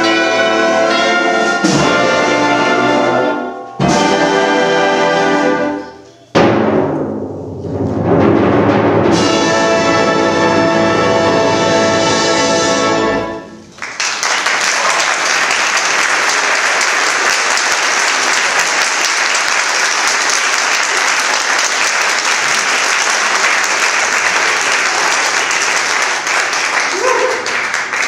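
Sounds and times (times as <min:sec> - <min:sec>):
audience applause: 0:13.7 - 0:28.0.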